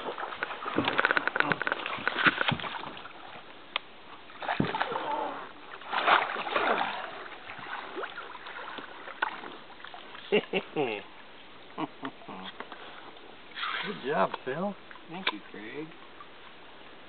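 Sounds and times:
fish splashing at water surface: 5.8s - 9.9s.

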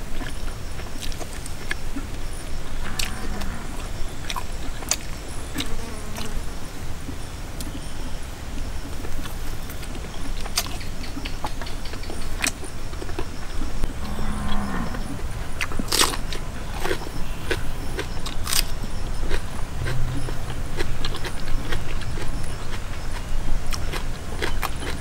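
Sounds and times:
steady low rumble: 13.8s - 25.0s
man chewing ribs: 15.6s - 25.0s
low falling hum: 18.8s - 24.4s.

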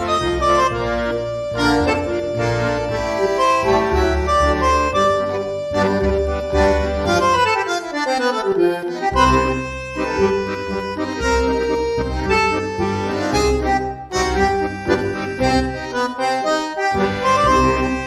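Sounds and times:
melody over bass beat: 0.0s - 7.5s.

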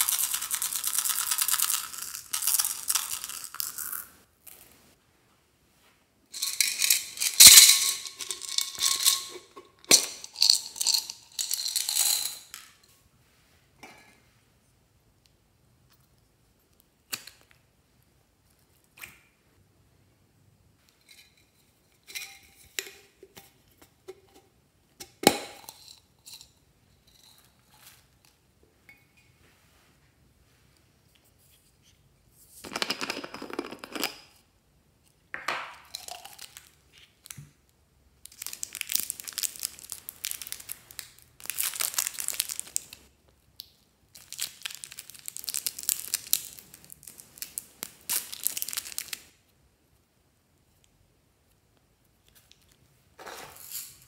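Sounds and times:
plastic wrapper crinkling and tearing: 38.3s - 43.0s, 44.1s - 49.3s.

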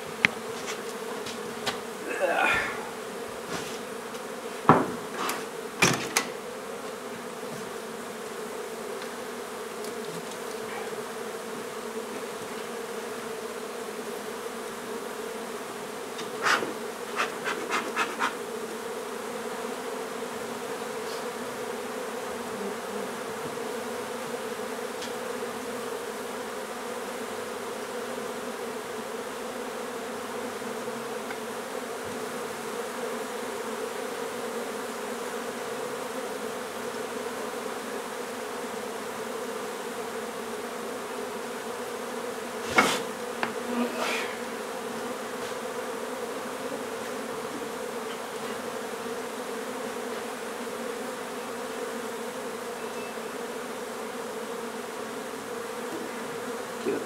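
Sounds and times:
honey bees buzzing: 0.0s - 57.0s
sharp knocks: 4.7s - 5.1s, 5.8s - 6.3s.

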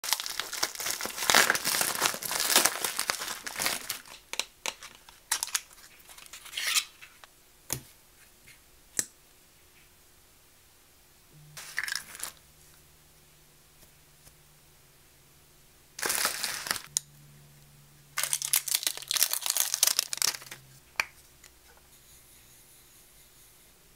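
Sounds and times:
bubble wrap crinkling: 0.0s - 6.9s, 11.6s - 12.4s, 16.0s - 16.9s, 18.2s - 21.2s.

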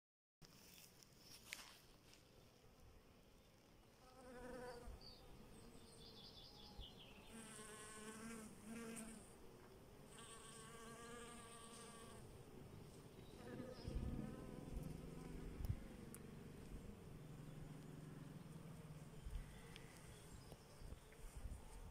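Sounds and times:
bee buzzing: 4.0s - 6.0s, 7.2s - 9.4s, 10.0s - 20.4s.

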